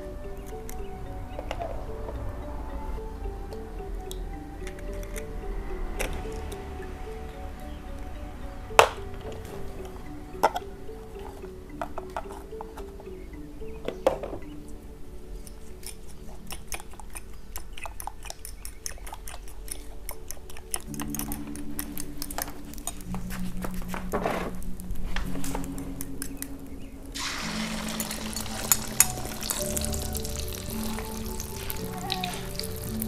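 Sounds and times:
background music: 0.0 - 33.0
egg sizzling in hot oil: 27.2 - 33.0.

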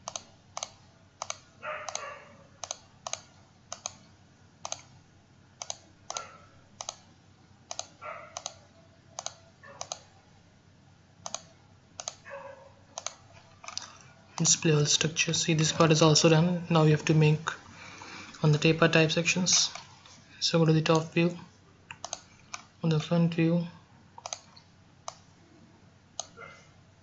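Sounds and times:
mouse buttons clicking: 0.0 - 4.0, 4.6 - 4.9, 5.6 - 7.0, 7.7 - 8.6, 9.2 - 10.0, 11.2 - 12.2.

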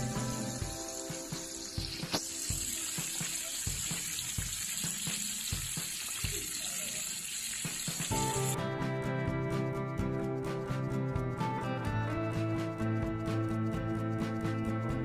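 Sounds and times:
chicken deep-frying in oil: 0.0 - 8.6
oil crackles and pops: 1.4 - 8.6.

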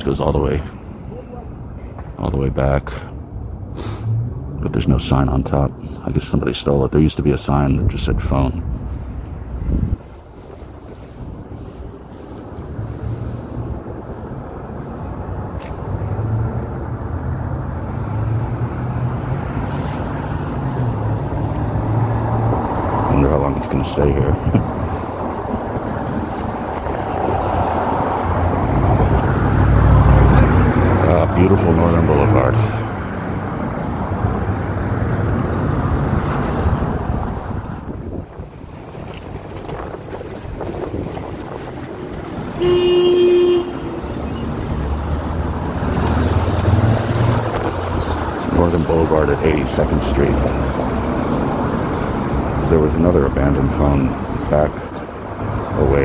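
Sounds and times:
road traffic rumble: 0.0 - 56.0
vehicle passing with hiss: 3.7 - 4.4, 8.8 - 14.4, 15.7 - 38.2, 41.8 - 56.0
vehicle horn blast: 42.5 - 44.1.

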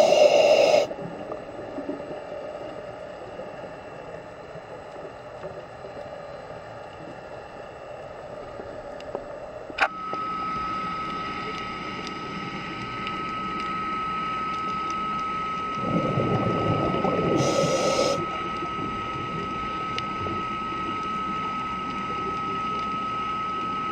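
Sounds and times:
muffled underwater hiss: 0.0 - 9.8, 15.6 - 22.8
steady high whine: 0.0 - 23.9.

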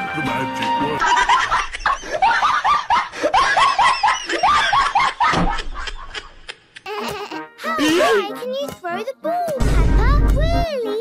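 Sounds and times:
laughing sound effect: 1.0 - 8.2.

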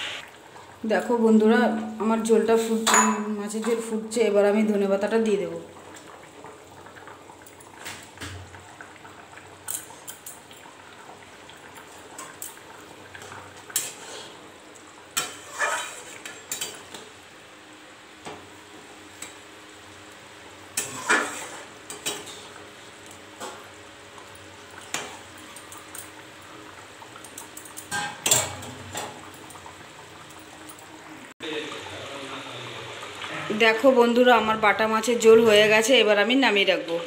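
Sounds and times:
metal spatula scraping pan: 15.2 - 16.3, 20.8 - 22.4.

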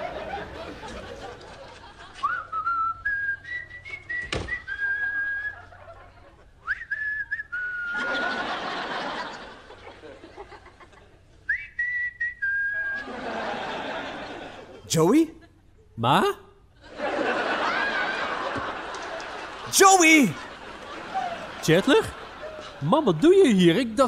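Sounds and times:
studio audience laughter: 0.0 - 2.2, 7.9 - 11.2, 13.0 - 14.9, 16.8 - 23.8
man whistling a tune: 2.2 - 5.6, 6.6 - 8.0, 11.5 - 13.0.

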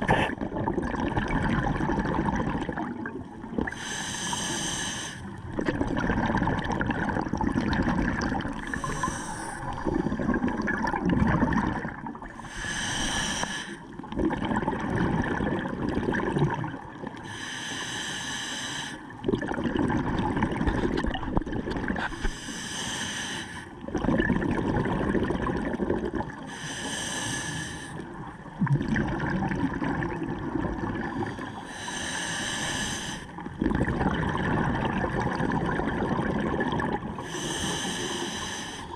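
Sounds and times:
exhaled bubbles rushing: 0.0 - 3.8, 5.4 - 12.4, 14.0 - 17.2, 19.2 - 22.2, 23.8 - 26.4, 28.4 - 31.4, 33.4 - 37.2
regulator hissing inhale: 3.7 - 5.4, 8.6 - 9.8, 12.4 - 13.9, 17.2 - 19.1, 22.1 - 23.8, 26.5 - 28.0, 31.4 - 33.4, 37.2 - 38.9.

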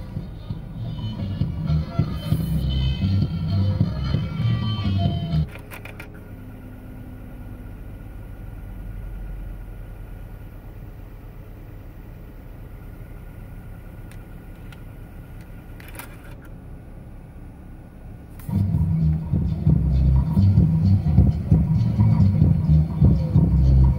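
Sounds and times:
car engine idling: 0.0 - 23.9
tape deck button clicks: 5.4 - 6.2.

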